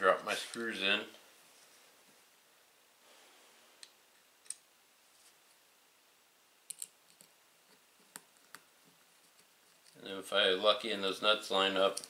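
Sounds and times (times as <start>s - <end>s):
small screws clicking: 6.7s - 7.3s.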